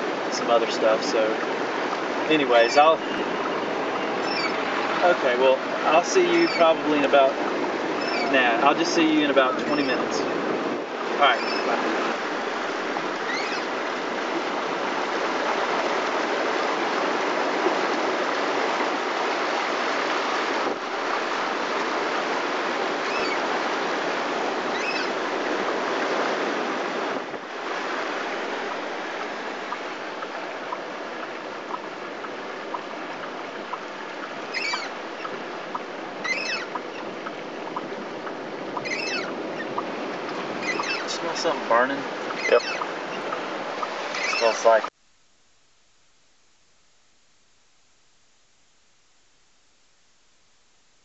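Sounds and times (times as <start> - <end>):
surf breaking on beach: 0.0 - 36.2, 36.8 - 44.9
short high squeaks: 4.0 - 4.6, 8.0 - 8.4, 13.3 - 13.7, 34.5 - 35.3, 36.2 - 36.7, 40.6 - 41.1, 42.4 - 43.3, 44.1 - 44.9.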